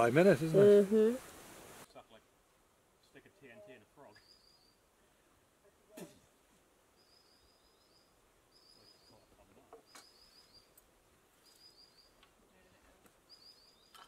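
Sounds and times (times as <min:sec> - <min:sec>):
faint birdsong: 0:03.0 - 0:14.0.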